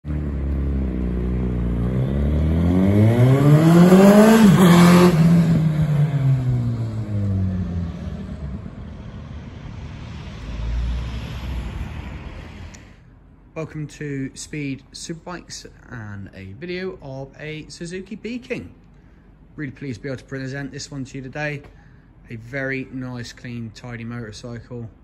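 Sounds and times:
motorcycle accelerating and passing: 0.0 - 13.0.

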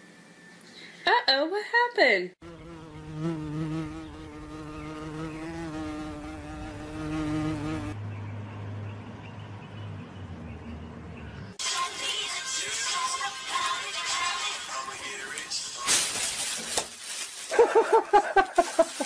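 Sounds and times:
flying insect buzzing: 2.4 - 8.0.

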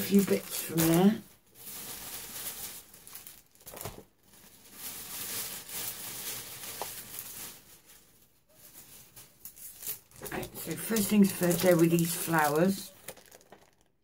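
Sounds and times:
packaging rustling: 0.0 - 14.0.

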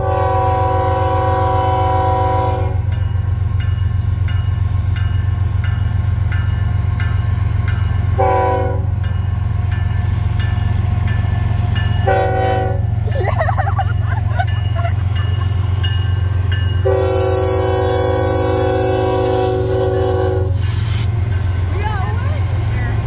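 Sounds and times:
locomotive air horn blasts: 0.0 - 2.9, 8.2 - 9.0, 12.0 - 12.9, 16.8 - 21.1
low train rumble: 0.0 - 23.0.

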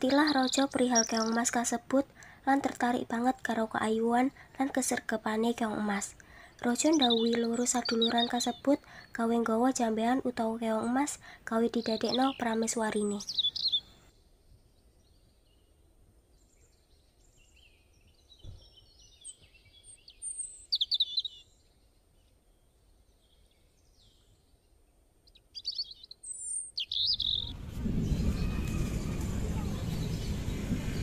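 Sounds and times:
small birds chirping: 0.0 - 31.0
noisy ambience: 27.1 - 31.0.

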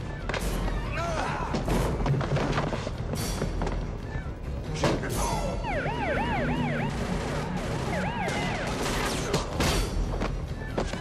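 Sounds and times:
emergency vehicle siren yelping: 5.3 - 9.1.

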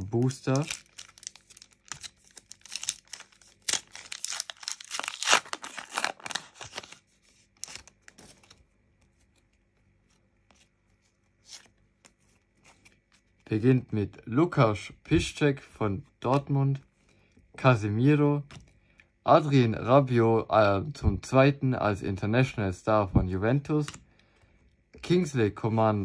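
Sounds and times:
wrapper crackling and tearing: 0.0 - 8.6
cards rustling: 0.0 - 14.0.

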